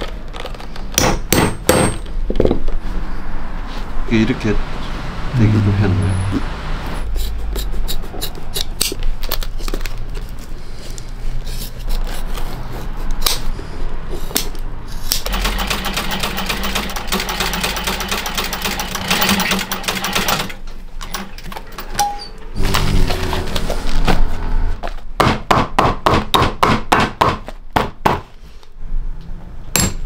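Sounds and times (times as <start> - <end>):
sewing machine stitching: 15.2 - 21.8.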